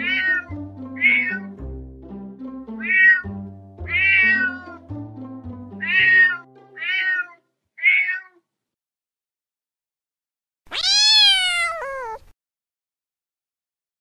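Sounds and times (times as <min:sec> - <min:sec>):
cat meowing: 0:00.0 - 0:01.5, 0:02.8 - 0:03.3, 0:03.9 - 0:04.8, 0:05.8 - 0:08.4, 0:10.7 - 0:12.3
soft background music: 0:00.0 - 0:07.5.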